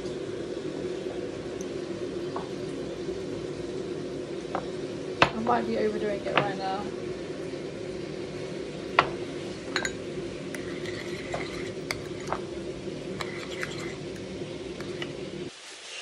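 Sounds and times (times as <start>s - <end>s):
steady low hum: 0.0s - 15.5s
spoon clinking ceramic bowl: 9.7s - 12.4s, 13.2s - 14.2s
spoon stirring thick sauce: 9.8s - 15.5s.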